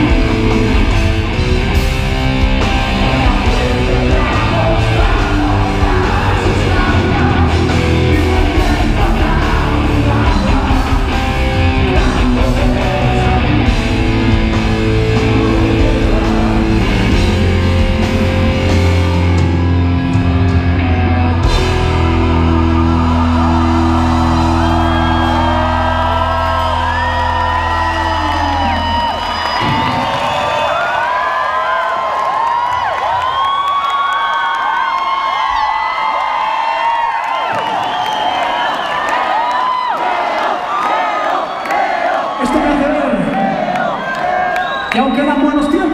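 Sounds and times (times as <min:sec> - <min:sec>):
man singing: 0:00.0 - 0:01.3, 0:02.7 - 0:18.9
rock band playing: 0:00.0 - 0:30.4.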